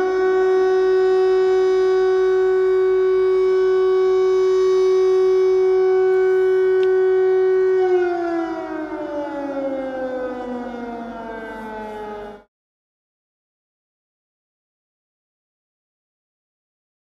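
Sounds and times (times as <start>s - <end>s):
air raid siren: 0.0s - 12.5s.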